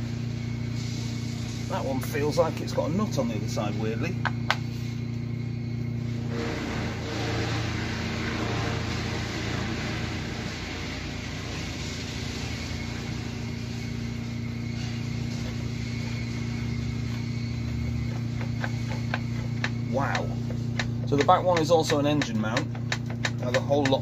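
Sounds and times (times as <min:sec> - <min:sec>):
motor hum: 0:00.0 - 0:24.0.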